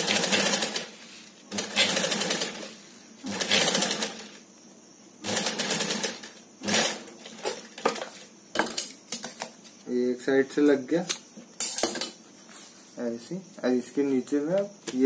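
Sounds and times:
sewing machine stitching: 0.0 - 0.9, 1.5 - 4.3, 5.2 - 7.0.

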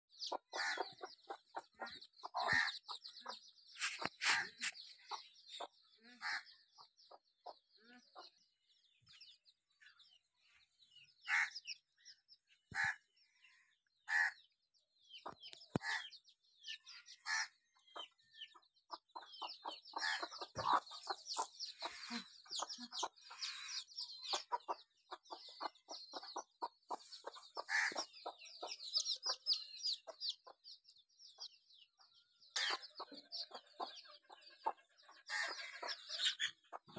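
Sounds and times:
hen clucking: 0.1 - 8.4, 17.1 - 31.5, 32.5 - 36.9
chicks peeping: 0.1 - 11.8, 13.9 - 36.9.

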